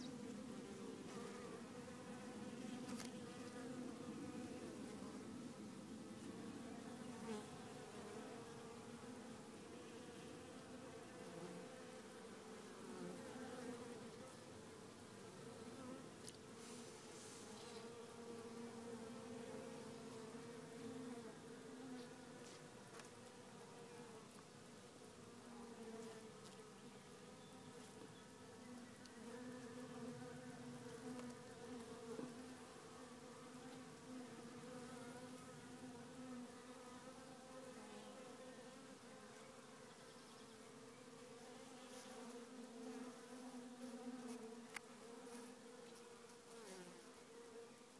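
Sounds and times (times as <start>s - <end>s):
honeybees buzzing: 0.0s - 47.9s.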